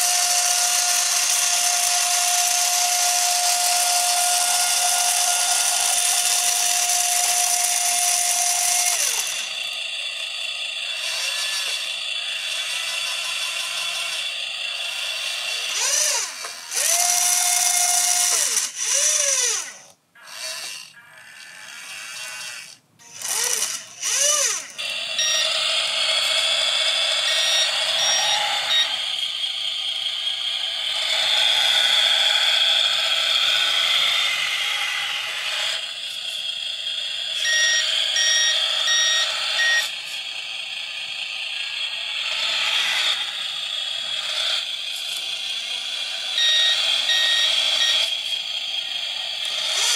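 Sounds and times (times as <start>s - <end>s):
small electric motors whining: 0.0s - 49.9s
electronic warning beeper: 25.2s - 25.6s, 27.2s - 29.1s, 37.4s - 39.9s, 46.3s - 48.1s.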